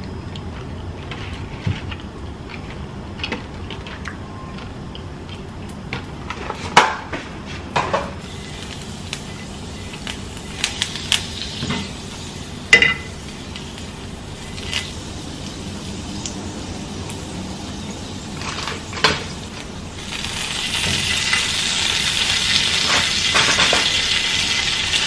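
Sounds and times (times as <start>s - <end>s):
oil sizzling: 8.2s - 25.0s.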